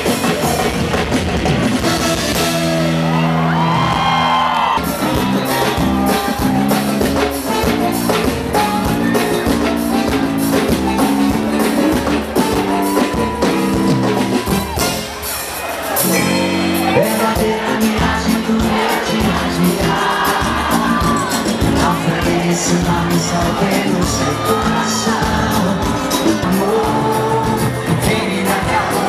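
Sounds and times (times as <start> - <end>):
live band playing: 0.0 - 29.0
metal-shelled drums beating: 4.8 - 29.0.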